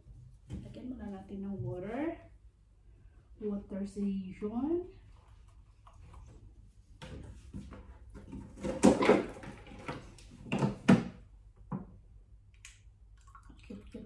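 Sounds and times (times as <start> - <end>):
plastic jug clunking and crinkling: 7.0 - 11.9.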